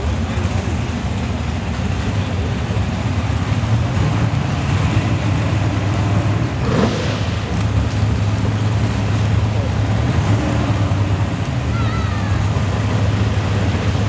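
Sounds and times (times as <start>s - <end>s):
race car engine idling: 0.0s - 14.0s
engine revving: 2.8s - 14.0s.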